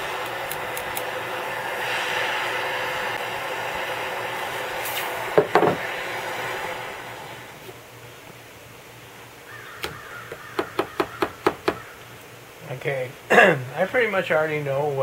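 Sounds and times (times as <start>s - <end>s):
hot blade sizzling in water: 0.0s - 7.6s
gas torch hissing: 0.0s - 7.8s.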